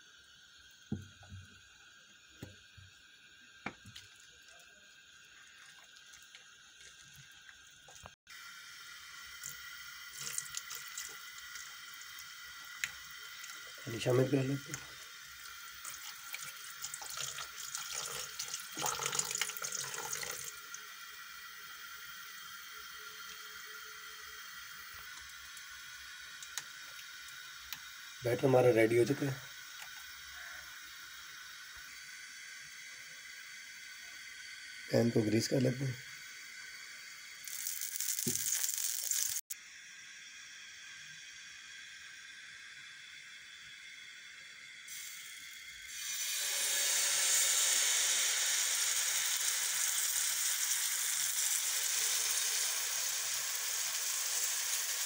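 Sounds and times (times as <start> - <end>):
faint steady hiss: 0.0 - 39.8
oil sizzling on hot pan: 0.0 - 55.0
water splashing into batter: 37.4 - 39.4.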